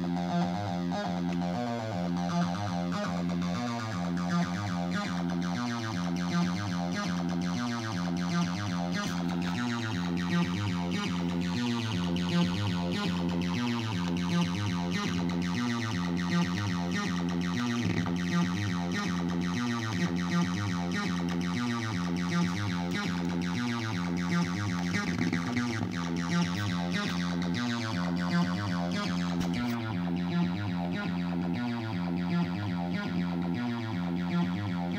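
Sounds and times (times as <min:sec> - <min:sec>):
acid synth bassline: 0:00.0 - 0:34.9.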